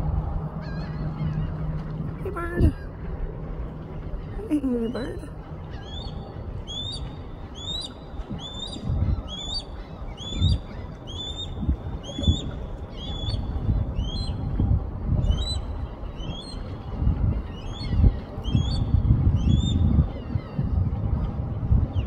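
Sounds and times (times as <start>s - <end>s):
low gusty rumble: 0.0s - 22.0s
osprey calling: 4.0s - 14.5s, 15.2s - 20.7s.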